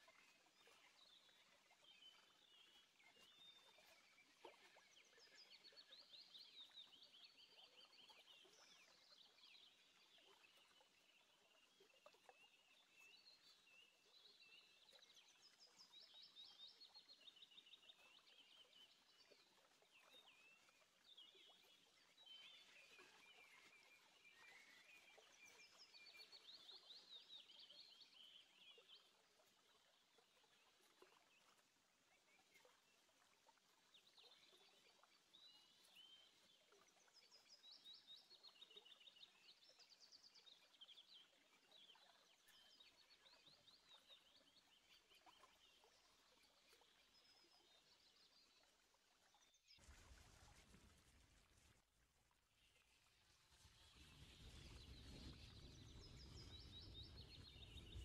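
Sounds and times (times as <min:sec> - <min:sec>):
small birds chirping and trilling: 0:53.5 - 0:58.0.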